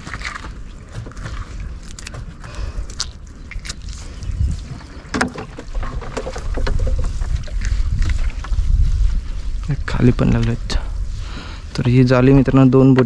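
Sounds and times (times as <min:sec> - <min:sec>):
water splashing: 0:00.0 - 0:09.1
wind rumble on microphone: 0:00.0 - 0:13.0.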